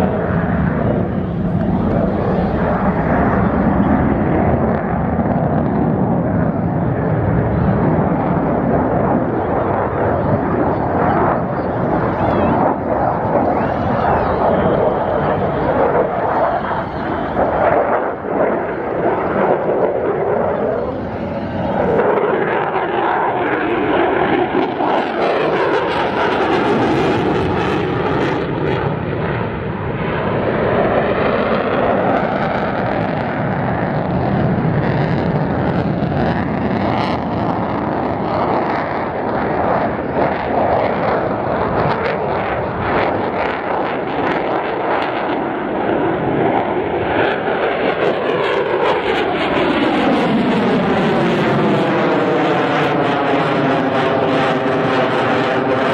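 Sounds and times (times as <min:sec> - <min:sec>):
jet engine roar: 0:00.0 - 0:55.9.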